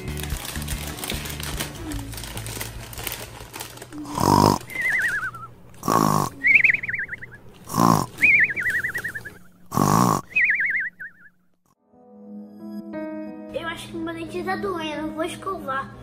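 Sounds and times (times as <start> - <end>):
soft background music: 0.0 - 4.0, 11.8 - 16.0
cartoon snoring: 4.0 - 6.6, 7.6 - 8.3, 9.6 - 10.4.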